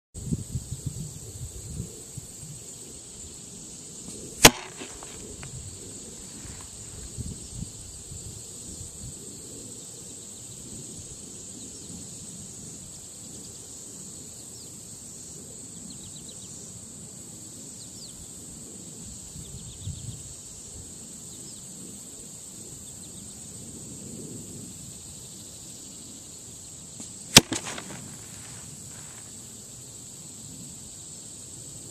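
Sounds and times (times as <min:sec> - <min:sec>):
arrows striking foam target: 0:04.4 - 0:05.4, 0:27.0 - 0:28.5.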